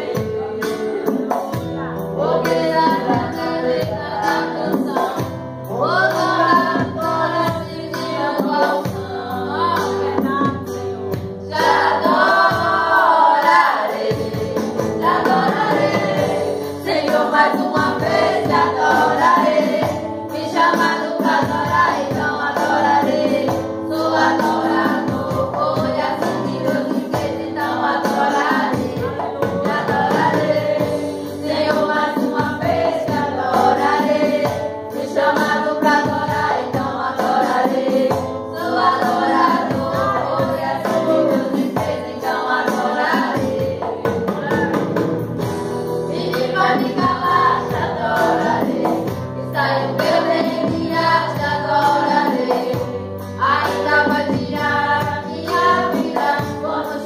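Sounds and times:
instrumental accompaniment: 0.0s - 57.0s
girl singing into a microphone: 46.1s - 57.0s.

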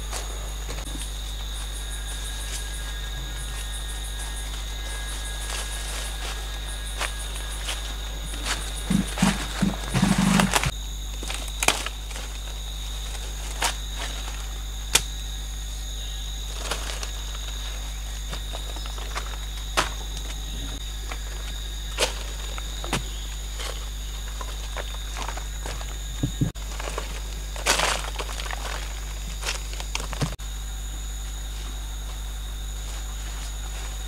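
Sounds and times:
high insect drone: 0.0s - 34.0s
footsteps: 2.4s - 10.7s, 21.0s - 30.4s.

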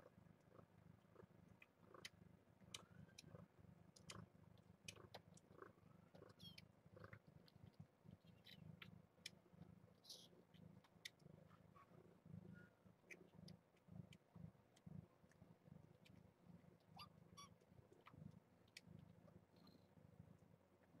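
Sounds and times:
cat purring: 0.0s - 21.0s
small clicks: 3.9s - 5.5s.

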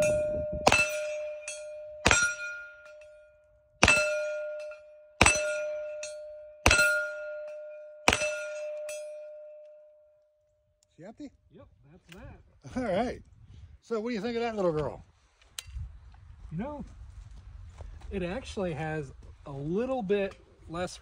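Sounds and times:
steel target plate ringing: 0.0s - 9.9s.

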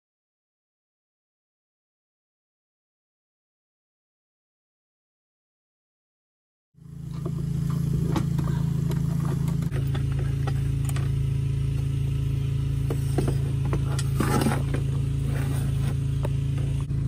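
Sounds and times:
vehicle engine humming: 6.8s - 17.0s
engine parts clicking and clattering: 7.0s - 12.0s, 12.7s - 17.0s.

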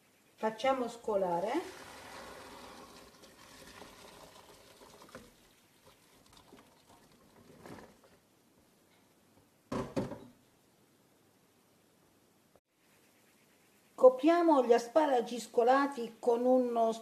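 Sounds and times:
liquid pouring into a colander: 1.6s - 8.2s.

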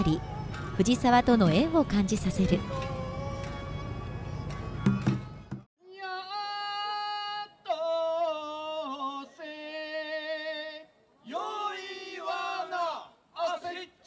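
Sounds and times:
drum-backed music: 0.5s - 3.6s, 4.4s - 5.7s
person singing unaccompanied: 1.5s - 10.9s.

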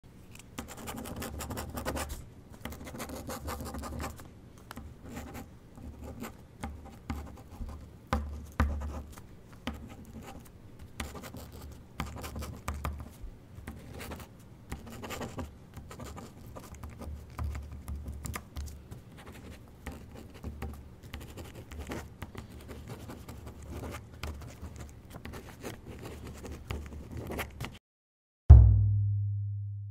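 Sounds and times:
pen scratching on paper: 0.6s - 4.2s, 5.0s - 18.4s, 19.1s - 27.6s
loud low tone: 28.5s - 29.9s.

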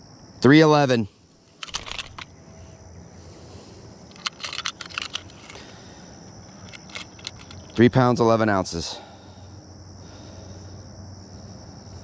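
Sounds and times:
low outdoor background: 0.0s - 12.0s
light clicks and rustles: 1.5s - 2.4s, 4.1s - 7.8s.

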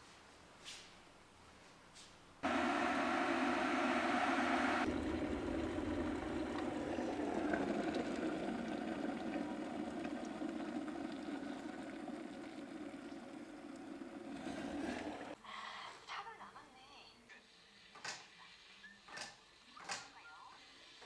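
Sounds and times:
coffee pouring into a mug: 4.8s - 15.4s.

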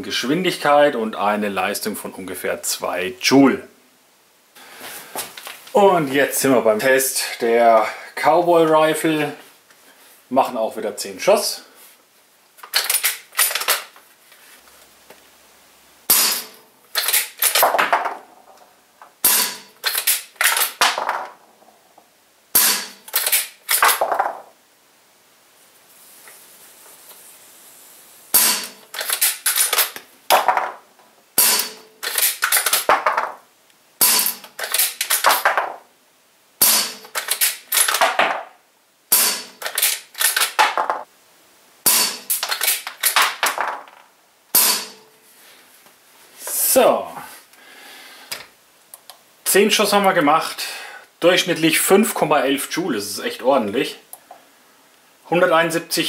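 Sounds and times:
air rifle shots: 16.1s - 18.1s, 19.2s - 21.3s, 22.6s - 24.4s, 28.3s - 30.7s, 31.4s - 33.3s, 34.0s - 35.8s, 36.6s - 38.4s, 39.1s - 41.1s, 41.8s - 43.8s, 44.5s - 45.0s.

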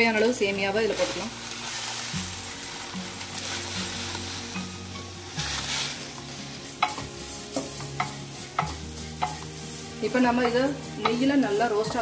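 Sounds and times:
noodles sizzling in a pan: 0.0s - 12.0s.

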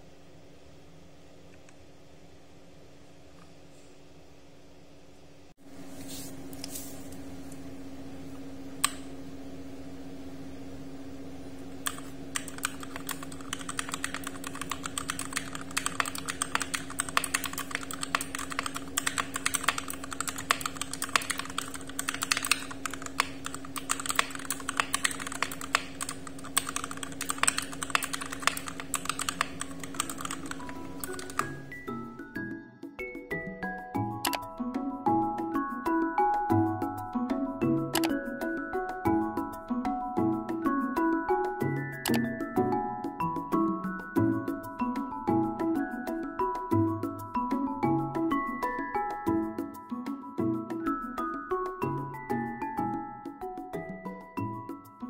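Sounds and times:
steady low hum: 0.0s - 32.3s
mechanical keyboard typing: 11.8s - 31.7s, 34.2s - 34.4s, 37.9s - 38.2s, 42.1s - 42.3s.

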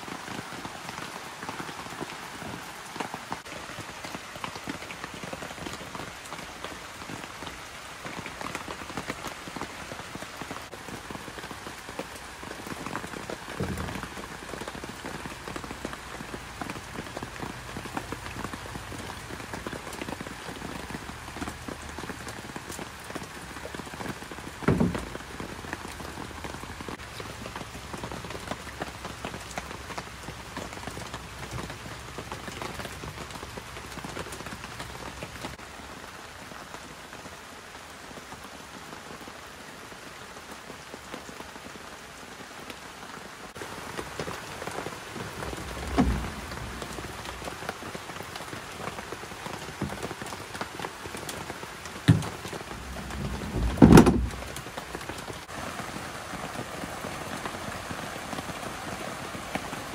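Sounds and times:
rain pattering: 0.0s - 59.9s
dull thumps: 13.6s - 14.2s, 24.6s - 25.4s, 45.4s - 47.4s, 52.1s - 54.6s.

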